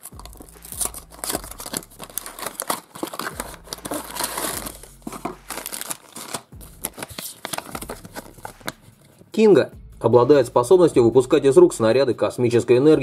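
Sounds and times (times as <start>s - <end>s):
packaging crinkling and rustling: 0.0s - 8.8s.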